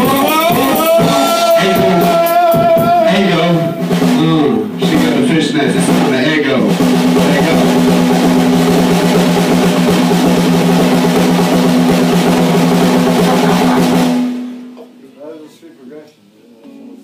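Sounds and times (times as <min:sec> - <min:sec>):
amplified rock band drone: 0:00.0 - 0:14.8.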